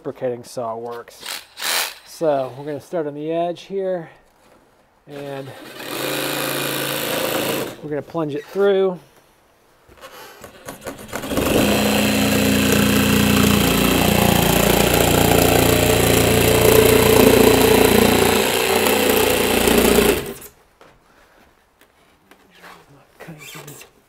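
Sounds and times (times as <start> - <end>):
reciprocating saw cutting foam board: 5.1 - 7.8, 10.0 - 20.5.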